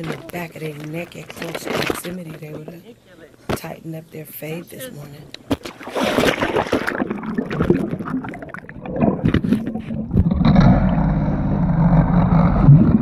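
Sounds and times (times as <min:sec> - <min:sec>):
water splashing and sloshing: 0:05.4 - 0:13.0
muffled underwater rumble: 0:06.9 - 0:13.0.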